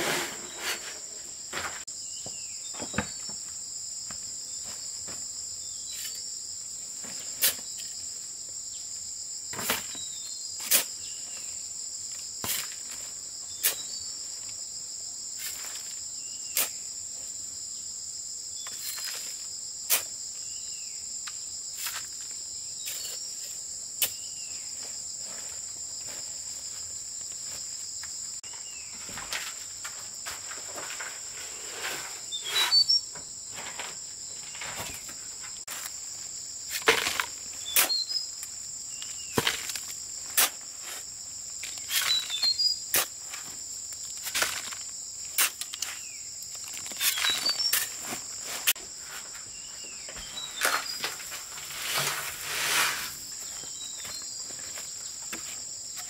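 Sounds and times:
metal shovel scraping sand: 0.0 - 1.8, 10.6 - 11.0, 30.3 - 35.0, 50.2 - 53.5.

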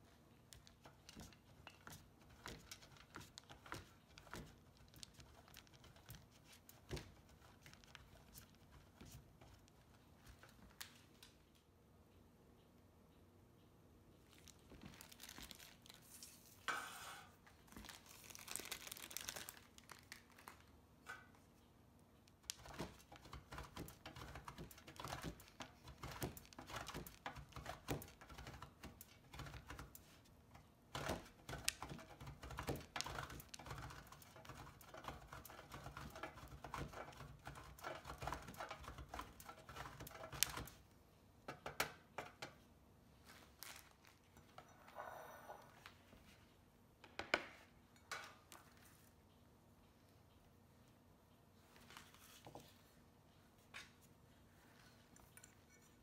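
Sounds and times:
plastic wrapper crinkling: 14.3 - 16.6, 17.5 - 20.8, 43.2 - 44.4
cheese grating on metal grater: 31.0 - 40.7.

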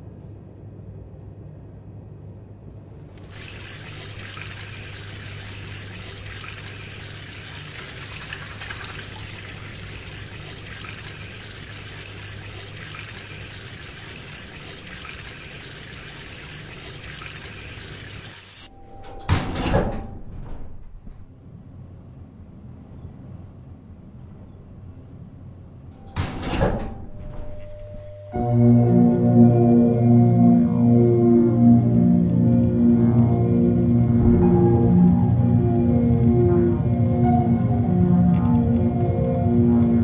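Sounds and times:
shower spray hissing: 3.1 - 18.7
low hum: 27.0 - 40.0.

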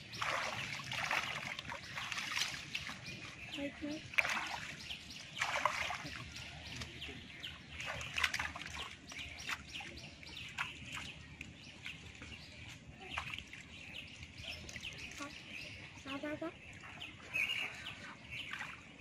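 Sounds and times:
hands splashing in muddy water: 0.0 - 3.2, 4.0 - 11.5
birds chirping: 0.0 - 19.0.

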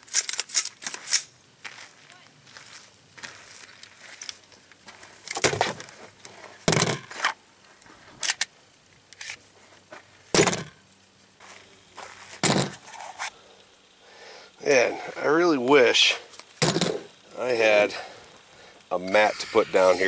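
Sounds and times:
guns set down on plastic table: 16.6 - 17.0.

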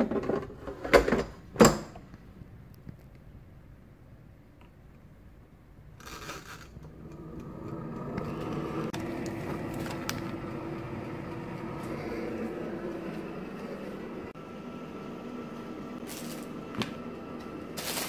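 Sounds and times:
air fryer fan humming: 6.7 - 18.0.

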